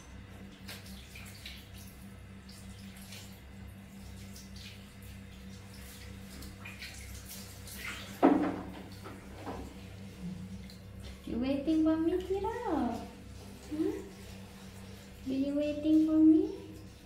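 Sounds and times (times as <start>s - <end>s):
steady low hum: 0.0s - 17.0s
water splashing and dripping: 0.3s - 11.3s.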